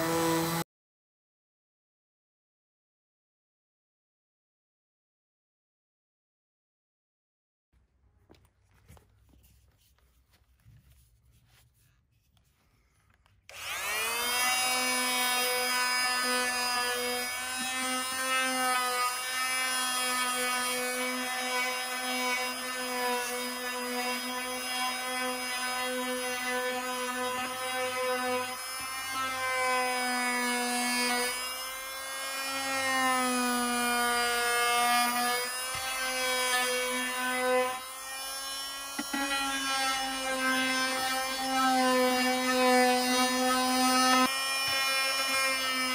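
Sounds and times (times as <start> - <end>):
multi-tool sanding wood: 0.0 - 0.6, 13.5 - 45.9.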